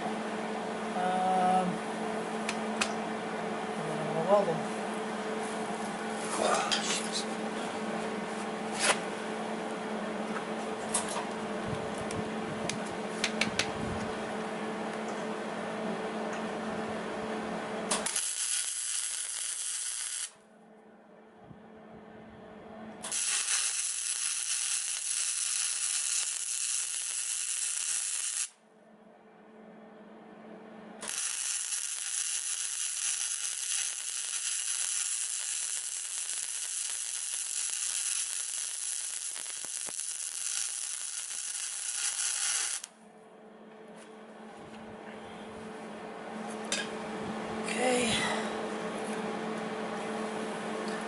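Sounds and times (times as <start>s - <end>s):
low steady hum: 0.0s - 23.2s, 28.5s - 31.2s, 42.8s - 51.0s
welder arc crackling and hissing: 17.9s - 20.4s, 23.0s - 28.6s, 31.0s - 42.9s.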